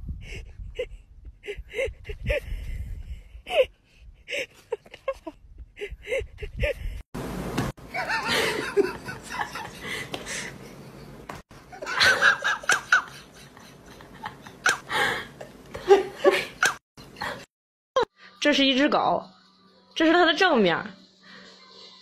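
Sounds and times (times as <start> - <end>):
people laughing: 7.9 - 10.5, 11.7 - 14.8
people talking: 18.4 - 19.3, 20.0 - 21.0.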